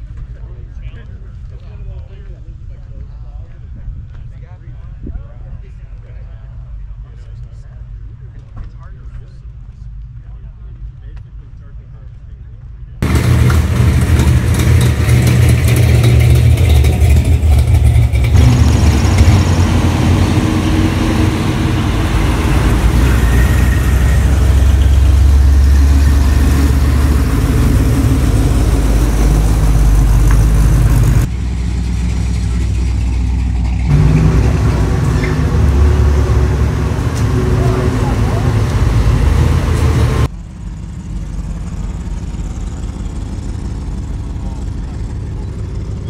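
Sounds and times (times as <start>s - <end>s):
engine revving: 13.0s - 40.3s
vi eight cars rumbling past: 13.0s - 46.0s.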